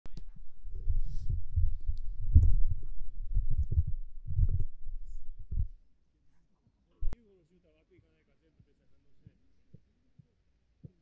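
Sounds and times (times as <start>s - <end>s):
wind buffeting microphone: 0.1s - 5.8s.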